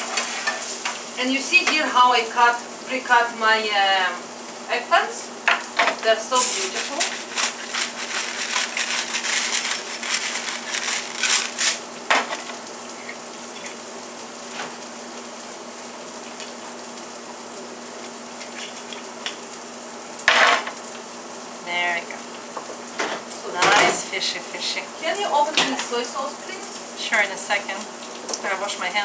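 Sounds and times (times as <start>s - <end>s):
food sizzling in oil: 0.0s - 29.0s
pepper grinder crunching clicks: 6.4s - 11.8s.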